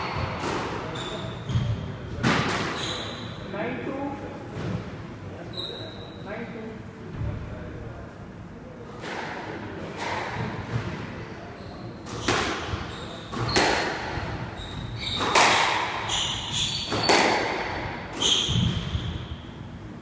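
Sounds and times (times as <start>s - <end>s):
squash ball hitting rackets and walls: 0.0s - 3.1s, 8.9s - 11.2s, 12.0s - 19.4s.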